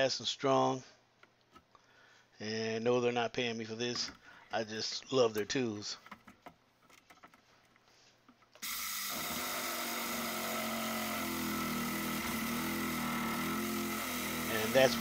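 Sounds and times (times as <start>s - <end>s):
reciprocating saw running: 8.6s - 15.0s.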